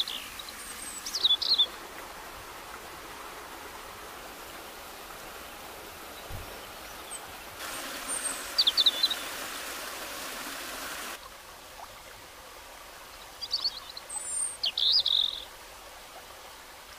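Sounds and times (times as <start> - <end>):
water running over rocks: 0.0 - 16.9
high bird chirps: 8.1 - 9.3.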